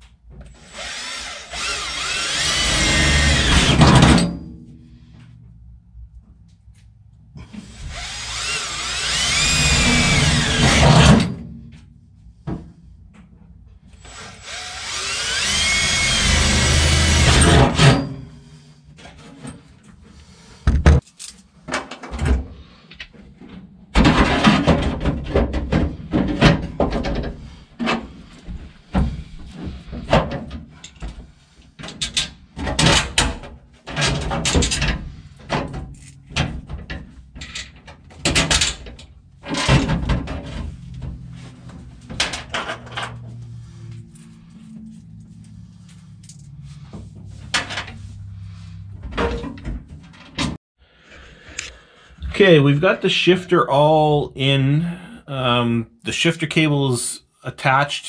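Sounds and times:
cordless drill whining: 0.5 - 3.8, 7.6 - 11.1, 13.9 - 18.1
knocks and clatter of parts: 3.0 - 6.9, 20.6 - 50.6.

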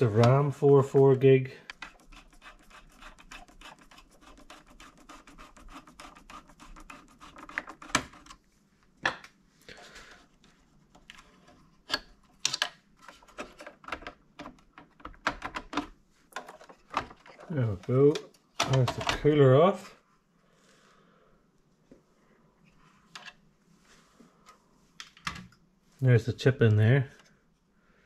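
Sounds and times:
screwdriver clicking and scraping: 1.7 - 8.4.

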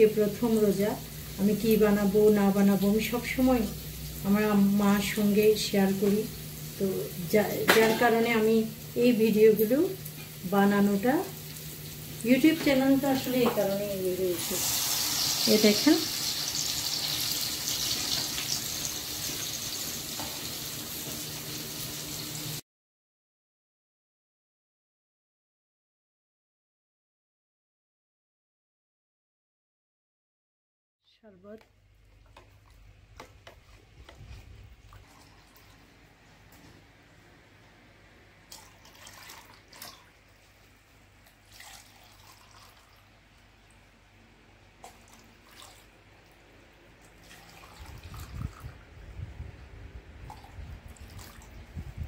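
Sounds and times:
frying sizzling hiss: 0.0 - 22.6
liquid trickling into plastic cup: 41.5 - 43.0, 47.2 - 48.8, 50.2 - 51.5.

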